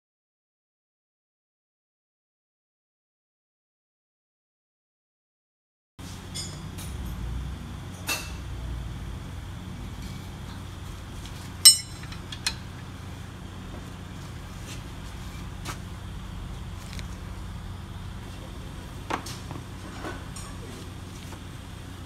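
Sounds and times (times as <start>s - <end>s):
steady low hum: 6.0s - 22.0s
sharp ringing metal clink: 11.6s - 12.1s
metal tools clinking on brake caliper: 11.6s - 12.6s.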